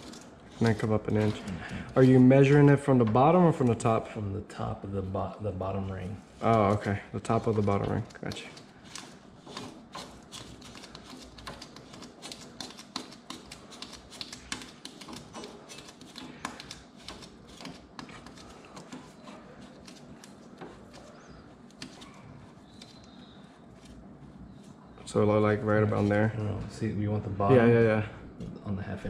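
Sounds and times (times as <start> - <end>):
hands clicking and tapping metal: 6.4 - 23.2.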